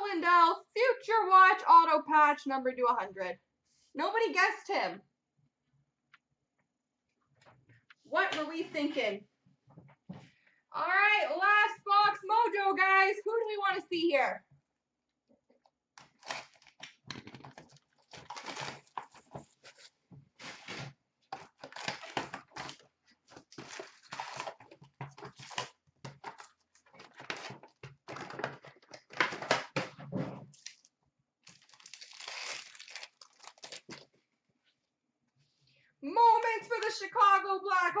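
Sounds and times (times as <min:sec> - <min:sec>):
pack wrappers crinkling: 0:16.0 - 0:29.7, 0:30.6 - 0:34.2
cardboard box tearing open: 0:16.1 - 0:16.8, 0:18.0 - 0:22.8, 0:23.4 - 0:25.8, 0:31.5 - 0:33.9.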